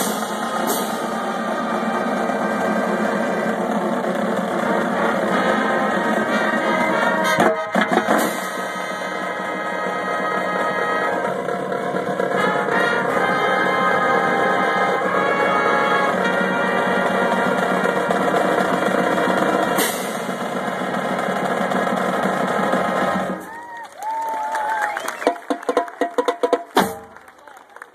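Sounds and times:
sharp drum hit: 0:00.0 - 0:02.7, 0:07.2 - 0:09.2, 0:18.1 - 0:23.4
marching band playing: 0:00.0 - 0:27.5.

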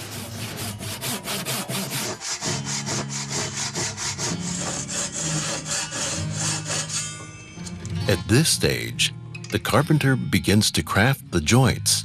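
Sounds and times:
hand saw cutting wood: 0:00.0 - 0:07.2.

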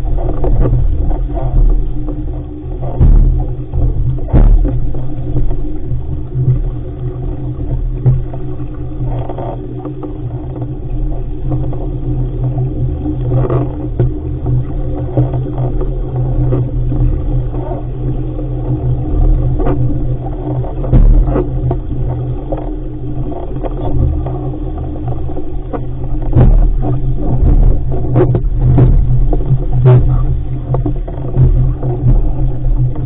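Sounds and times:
wind buffeting microphone: 0:00.0 - 0:08.7
water splashing against hull: 0:00.0 - 0:33.0.

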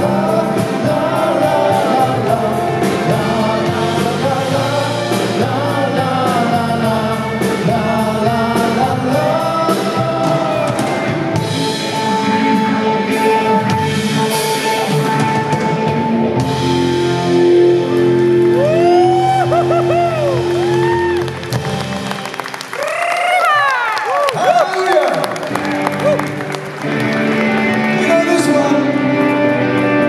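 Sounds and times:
man singing lead vocal: 0:00.0 - 0:16.2, 0:27.9 - 0:30.0
drum kit: 0:00.0 - 0:22.9
electric guitar: 0:00.0 - 0:24.0, 0:25.1 - 0:30.0
electric keyboards: 0:00.0 - 0:30.0.

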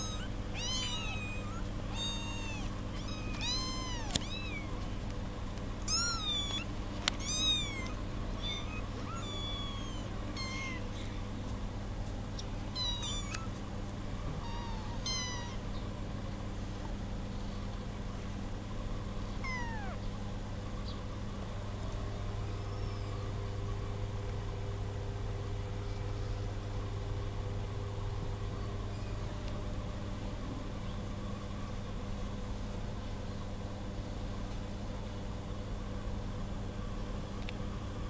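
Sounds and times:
kittens mewing: 0:00.0 - 0:05.1, 0:05.8 - 0:11.4, 0:12.4 - 0:15.8, 0:19.4 - 0:20.1
steady low hum: 0:00.0 - 0:38.0.

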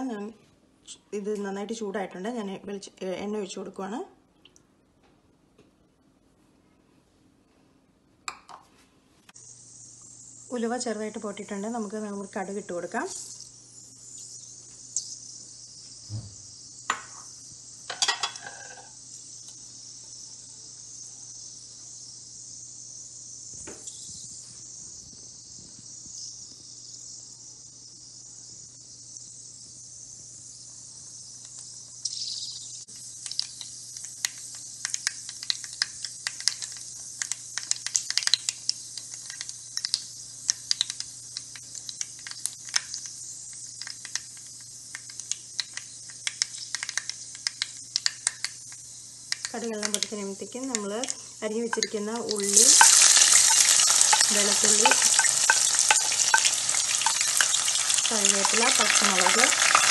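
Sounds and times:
oil sizzling in a frying pan: 0:09.4 - 0:59.9
mustard seeds popping: 0:31.4 - 0:59.9.

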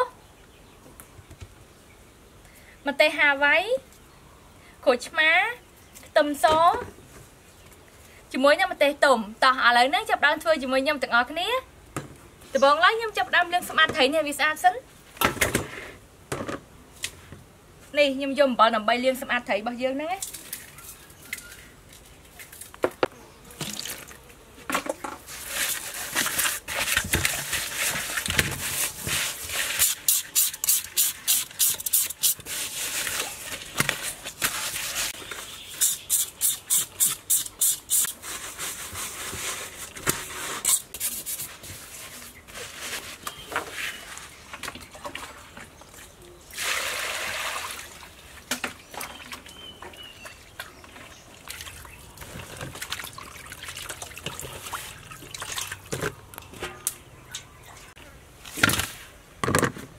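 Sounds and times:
water sloshing and splashing: 0:23.6 - 0:24.2, 0:25.2 - 0:29.8, 0:44.1 - 0:58.0.

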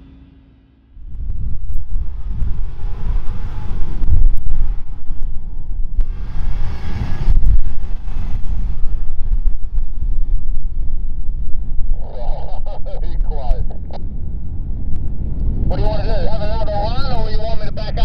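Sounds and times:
engines working under load: 0:00.0 - 0:18.0
low wind rumble on microphone: 0:00.9 - 0:18.0
tyres churning sand: 0:15.7 - 0:18.0.

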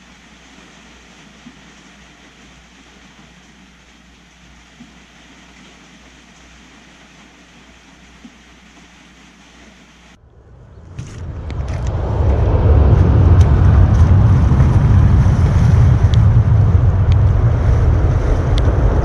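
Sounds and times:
wind buffeting microphone: 0:10.2 - 0:19.0.

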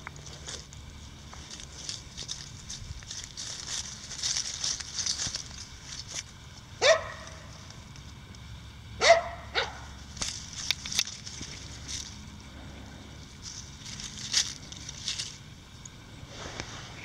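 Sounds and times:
footsteps on dry leaves: 0:00.0 - 0:08.3, 0:09.0 - 0:17.0
puppy yipping barks: 0:06.8 - 0:07.2, 0:09.0 - 0:09.9.

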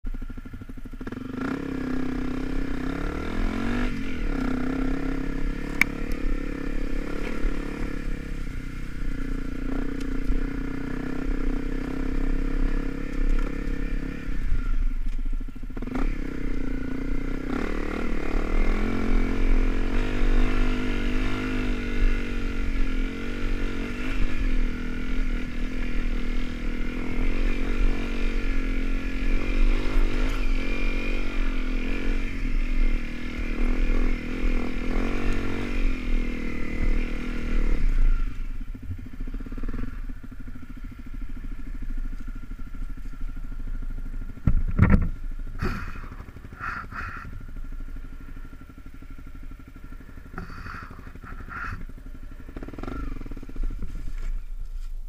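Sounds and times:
motorcycle engine revving: 0:00.1 - 0:55.0.

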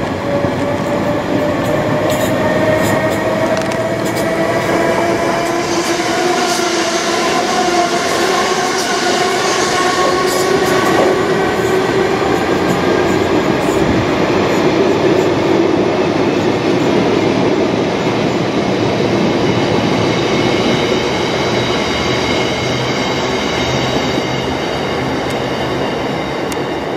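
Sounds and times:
train wheels rumbling on rail: 0:00.0 - 0:26.9.

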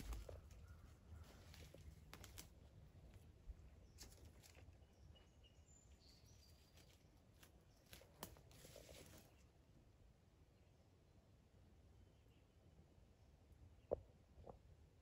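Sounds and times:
faint rustles and clicks: 0:00.0 - 0:04.9, 0:06.5 - 0:09.4.

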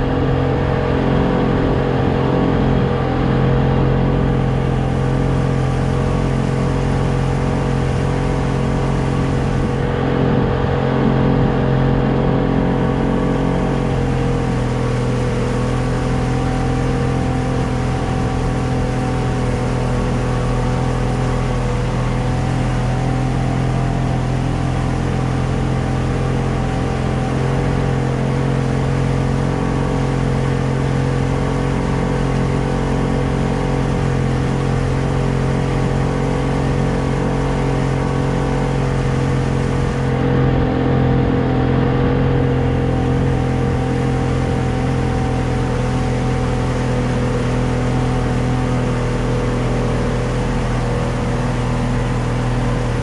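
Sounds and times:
motorboat engine humming: 0:00.0 - 0:53.0.

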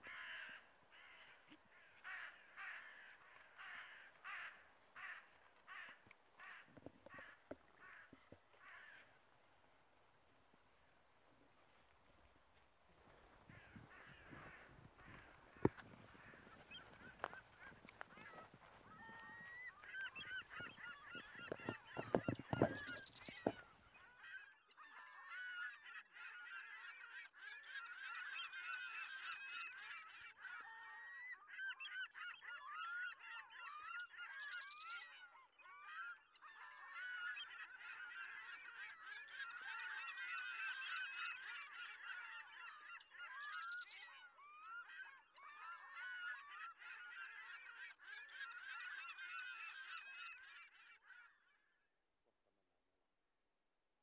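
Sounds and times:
gulls calling: 0:00.0 - 0:24.3.

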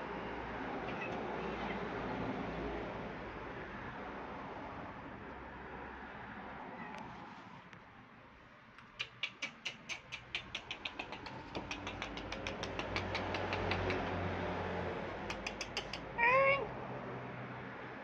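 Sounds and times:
cat meowing: 0:00.8 - 0:01.8, 0:15.9 - 0:16.7
sharp clicks: 0:08.8 - 0:14.4, 0:15.2 - 0:16.2.

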